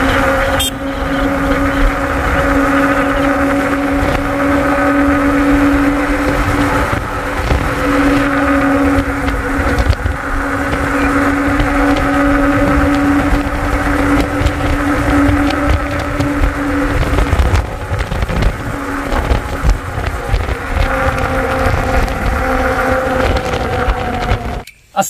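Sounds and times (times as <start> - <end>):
low wind rumble: 0.0 - 24.7
motorcycle engine cruising: 0.0 - 24.7.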